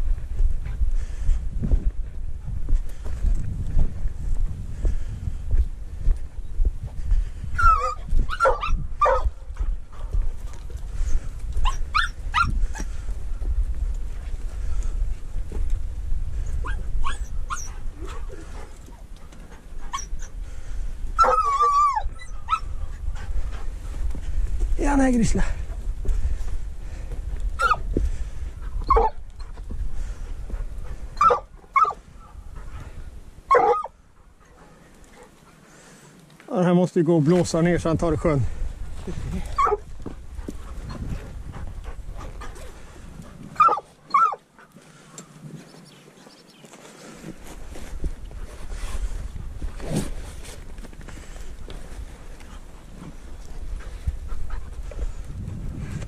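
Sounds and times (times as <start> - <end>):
wind rumble on microphone: 0.0 - 35.1, 37.3 - 43.8, 47.0 - 56.0
dog yelping barks: 7.6 - 9.4, 11.6 - 12.5, 16.6 - 17.7, 21.2 - 22.7, 27.6 - 27.8, 28.9 - 29.2, 31.2 - 32.0, 33.5 - 33.9, 39.6 - 39.8, 43.6 - 44.4.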